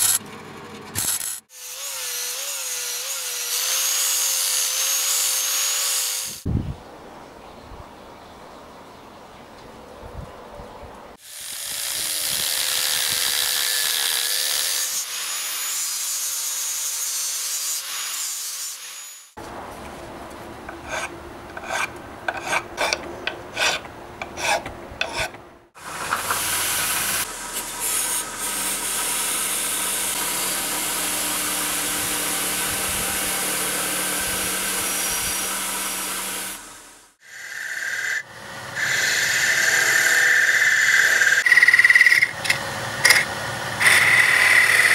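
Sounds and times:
file rasping on steel: 0:20.7 - 0:25.4, 0:38.8 - 0:44.9
wood lathe chisel scraping: 0:20.7 - 0:29.2, 0:38.8 - 0:44.9.

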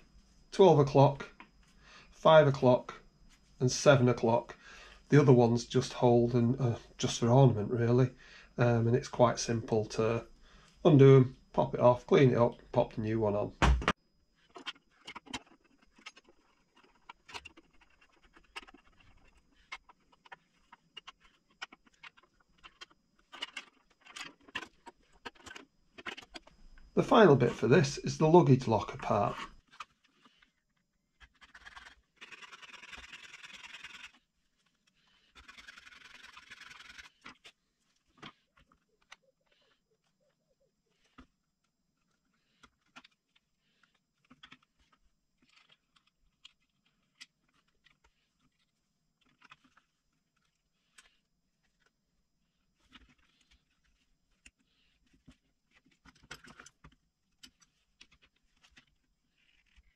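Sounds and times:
hands scraping plastic housing: 0:14.4 - 0:26.5, 0:29.0 - 0:59.9
plastic clicks and rattles: 0:14.5 - 0:26.5, 0:31.2 - 0:34.2, 0:52.8 - 0:59.9.

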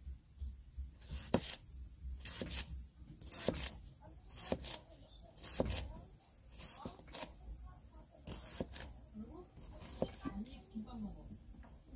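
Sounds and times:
knife crunching through onion: 0:01.0 - 0:01.6, 0:02.2 - 0:05.9, 0:08.3 - 0:08.9, 0:09.6 - 0:10.2.

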